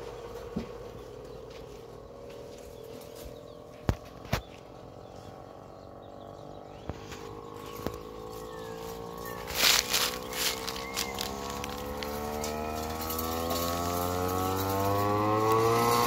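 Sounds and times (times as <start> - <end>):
electric chopper humming: 0.0 - 16.0.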